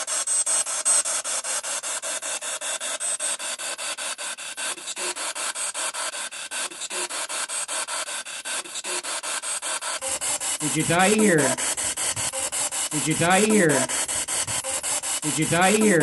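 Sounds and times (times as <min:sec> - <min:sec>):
pulsing radio static: 0:10.0 - 0:16.0.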